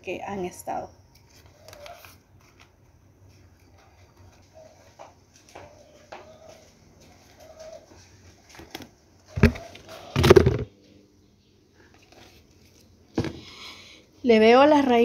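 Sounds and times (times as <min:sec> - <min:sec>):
dove cooing: 0:04.4 - 0:08.6, 0:09.2 - 0:10.7.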